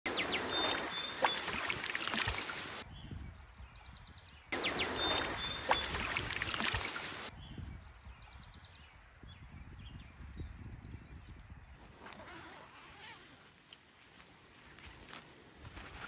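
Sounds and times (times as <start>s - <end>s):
sharp water splash: 0.1s - 2.8s, 4.6s - 7.3s
stream water running: 0.1s - 2.8s, 4.6s - 7.3s.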